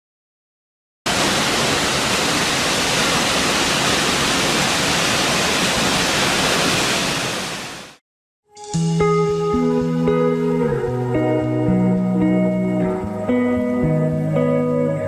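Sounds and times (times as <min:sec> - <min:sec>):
waterfall rushing: 0:01.1 - 0:08.0.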